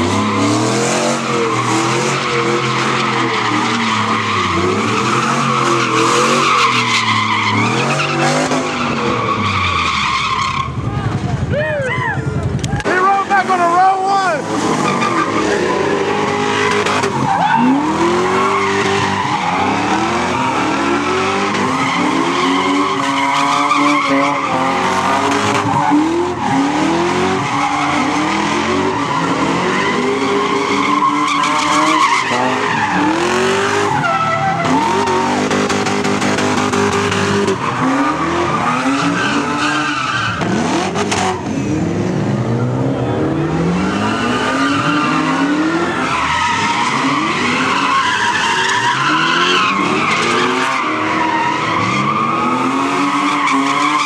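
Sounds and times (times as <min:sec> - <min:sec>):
car engines revving: 0:00.0 - 0:54.0
tyres squealing: 0:43.8 - 0:54.0.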